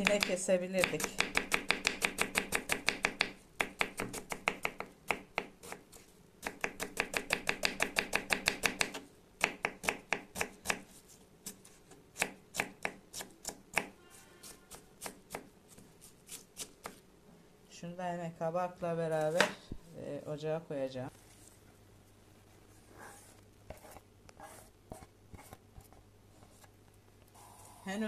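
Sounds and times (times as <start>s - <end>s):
knife chopping on wooden board: 0.0s - 5.8s, 6.4s - 10.8s.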